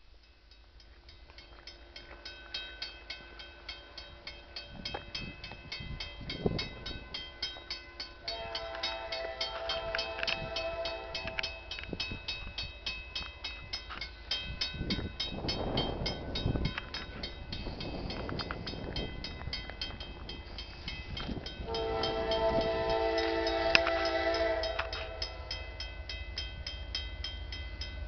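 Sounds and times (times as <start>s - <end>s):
crossing warning bell ringing: 0.2s - 28.0s
rushing noise of passing train: 0.6s - 28.0s
train air horn: 8.2s - 11.7s, 21.6s - 25.5s.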